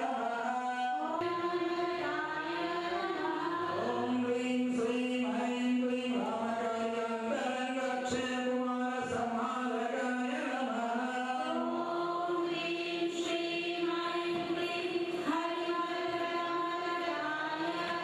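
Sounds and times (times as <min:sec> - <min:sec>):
women chanting a hymn in unison: 0:00.0 - 0:18.0.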